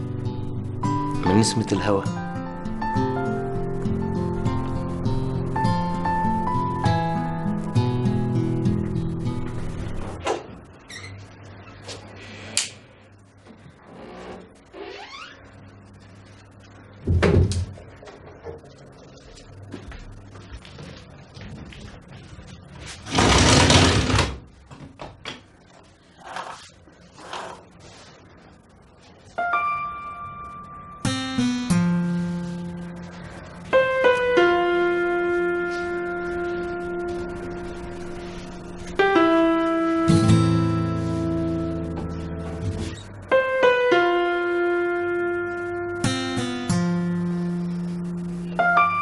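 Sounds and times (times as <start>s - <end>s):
piano notes ringing: 0.0s - 10.8s, 29.2s - 49.0s
curtains swishing along rail: 22.8s - 24.4s
window sliding shut: 23.0s - 24.4s.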